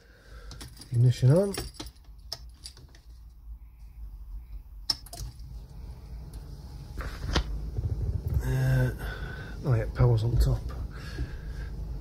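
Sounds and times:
faint low rumble: 3.2s - 12.0s.

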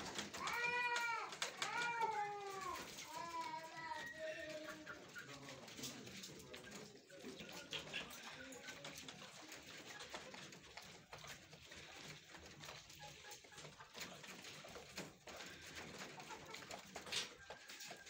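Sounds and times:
faint chicken calls: 0.0s - 5.9s, 11.7s - 18.0s
hens pecking at plastic troughs: 0.0s - 18.0s.

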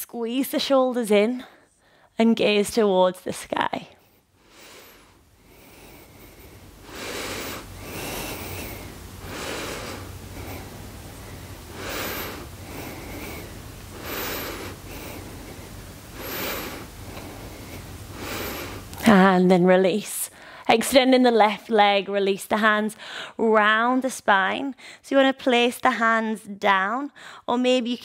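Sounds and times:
woman breathing evenly: 1.3s - 2.2s, 3.9s - 19.1s, 20.3s - 20.7s, 23.0s - 23.4s, 24.8s - 25.1s, 27.1s - 27.5s.

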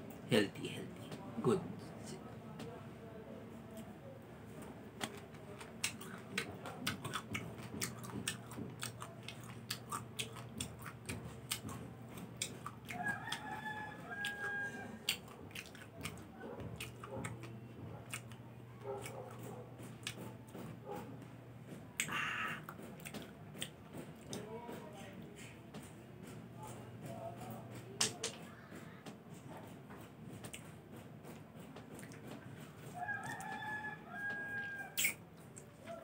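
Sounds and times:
chewing citrus slice: 5.0s - 21.1s, 22.0s - 24.5s, 30.4s - 33.6s, 34.9s - 36.0s
rooster crowing: 12.9s - 15.1s, 32.9s - 35.1s.

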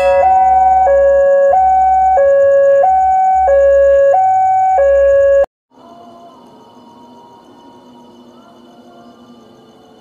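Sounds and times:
two-tone level crossing alarm: 0.0s - 5.5s.

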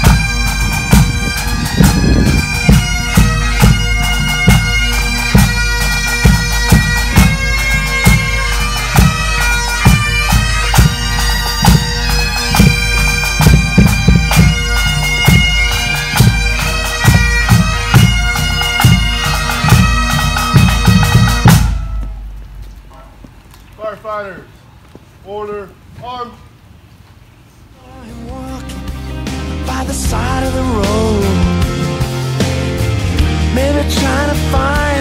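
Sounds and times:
bagpipes playing: 0.0s - 22.7s
drum beating: 0.0s - 23.5s.

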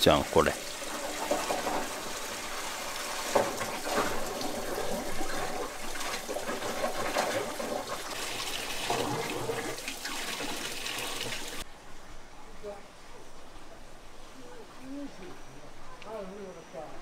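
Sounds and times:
water splashing into trough: 0.0s - 11.6s.

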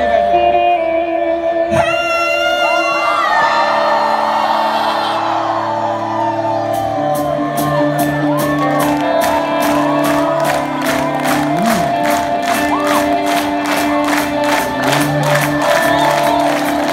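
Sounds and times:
crowd shouting and whooping: 2.2s - 16.9s
rock band playing live: 5.2s - 16.9s.

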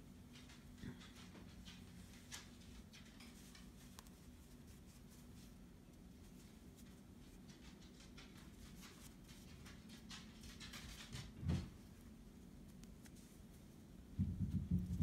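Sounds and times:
cloth napkin rustling: 1.5s - 7.5s, 11.8s - 14.0s
soft low thump: 14.2s - 15.0s.

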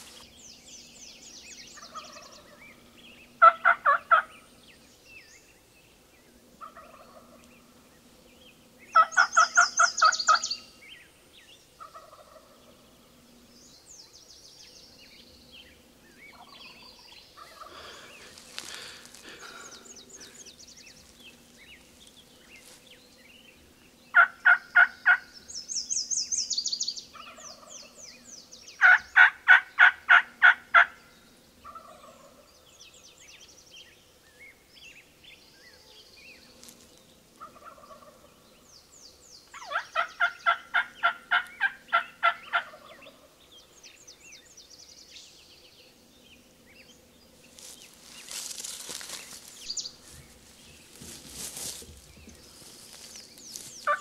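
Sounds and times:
rustle of brush: 0.0s - 1.0s, 15.9s - 23.6s, 36.2s - 38.1s, 47.3s - 54.0s
songbird chirps: 0.0s - 29.9s, 30.8s - 54.0s
turkey yelping: 3.4s - 4.3s, 39.6s - 42.9s.

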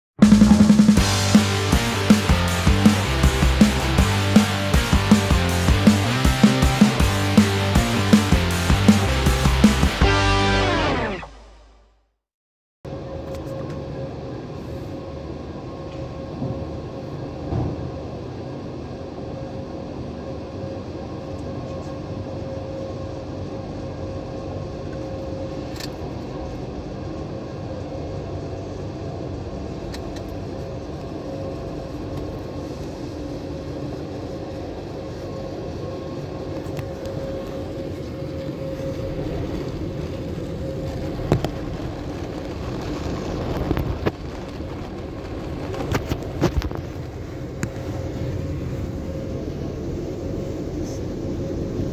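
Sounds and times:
constant pitched hum: 12.9s - 51.9s.

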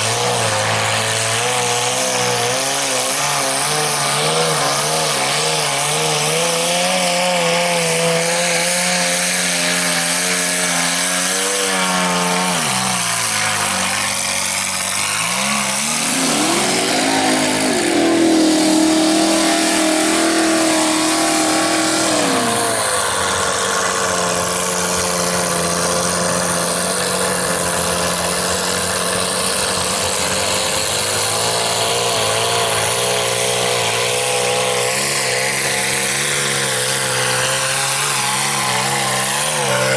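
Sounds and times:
truck engine revving: 0.0s - 39.9s
tyres churning through mud: 0.0s - 39.9s
hiss of spraying mud: 15.9s - 24.4s.

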